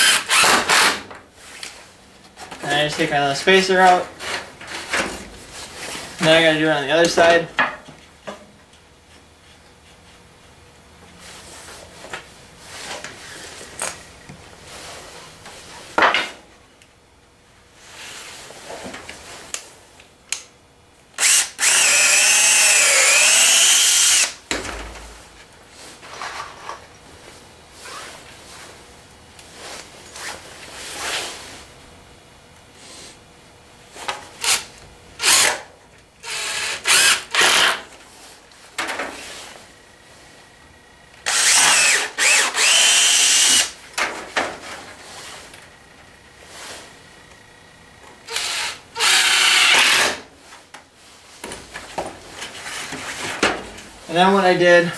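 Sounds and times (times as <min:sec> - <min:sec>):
cordless drill whining: 0:00.0 - 0:01.0, 0:21.2 - 0:24.4, 0:35.2 - 0:35.5, 0:36.2 - 0:37.8, 0:41.2 - 0:43.8, 0:48.3 - 0:50.2.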